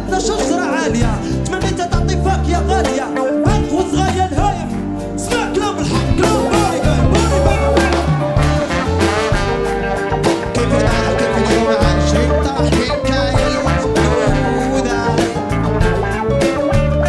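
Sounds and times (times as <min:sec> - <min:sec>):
live reggae band: 0:00.0 - 0:17.0
repeating bass line: 0:03.5 - 0:17.0.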